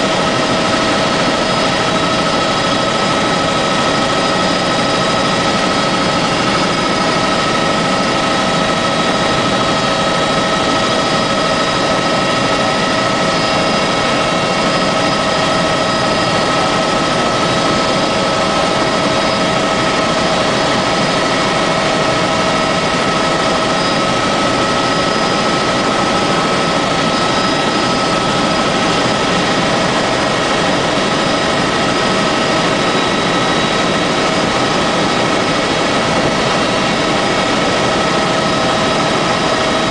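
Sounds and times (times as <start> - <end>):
constant whine: 0.0 - 39.9
helicopter engine and rotor noise: 0.0 - 39.9.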